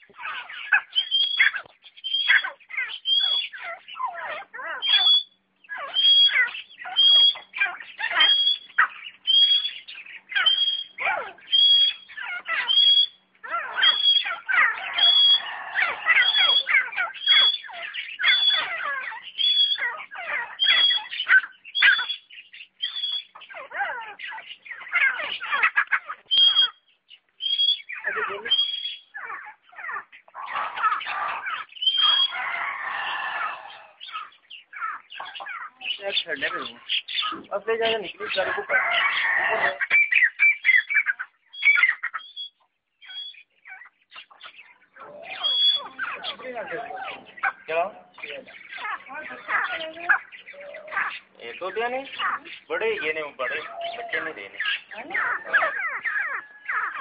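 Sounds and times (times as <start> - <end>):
other birds calling: 0.0 - 57.0
partridge calling: 0.0 - 57.0.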